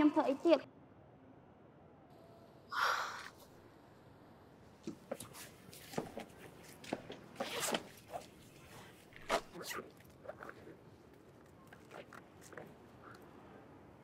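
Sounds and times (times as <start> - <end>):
zipper zipping: 7.4 - 8.3.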